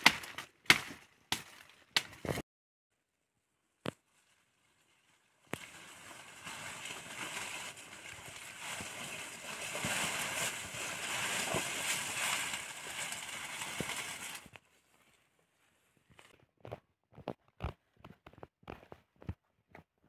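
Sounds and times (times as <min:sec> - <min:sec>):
rain falling in forest: 0:04.8 - 0:14.5.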